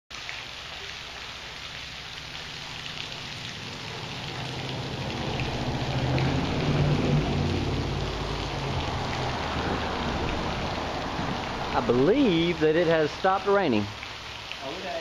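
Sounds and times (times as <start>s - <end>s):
rain pattering on water: 0.1s - 15.0s
low rumble: 3.0s - 11.8s.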